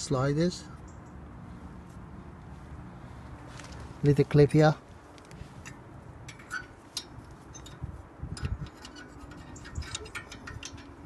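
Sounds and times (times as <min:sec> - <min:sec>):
metal spring clip clicking: 0:05.7 - 0:11.0.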